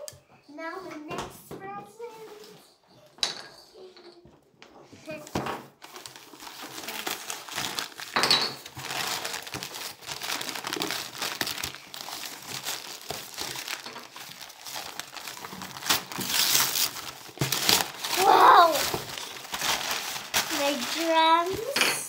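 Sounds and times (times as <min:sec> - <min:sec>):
wrapping paper crinkling and tearing: 0:05.2 - 0:21.8.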